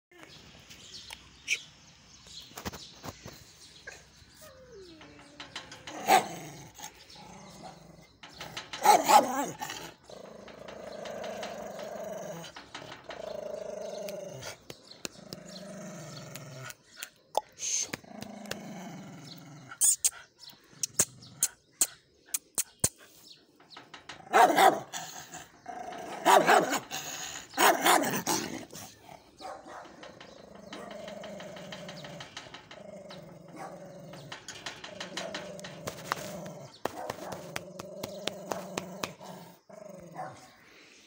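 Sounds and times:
dog growling: 4.6s - 16.9s, 18.0s - 19.8s, 24.7s - 40.6s
dog barking: 8.8s - 9.5s, 24.3s - 24.9s, 26.2s - 26.8s.

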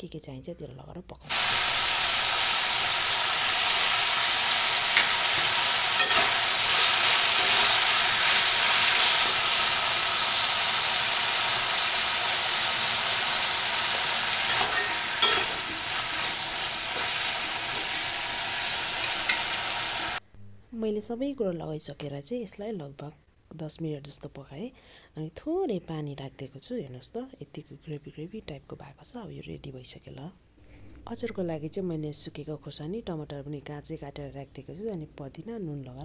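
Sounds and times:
vegetables sizzling in a pan: 1.3s - 20.2s.

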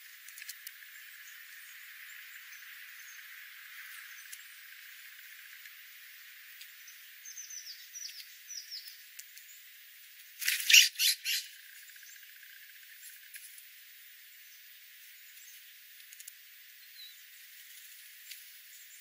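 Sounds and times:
small birds chirping: 0.0s - 19.0s
harsh raspy jay calls: 10.5s - 11.5s.

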